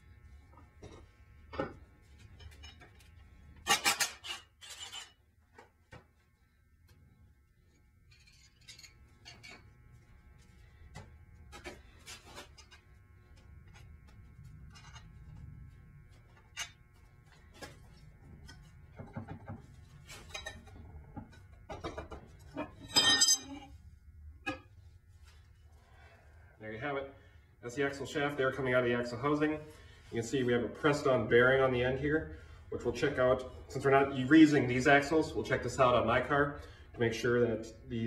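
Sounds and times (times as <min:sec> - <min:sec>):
metal parts clinking and tapping: 0:08.1 - 0:09.6, 0:22.6 - 0:23.6
loud ringing metal clank: 0:22.9 - 0:23.6.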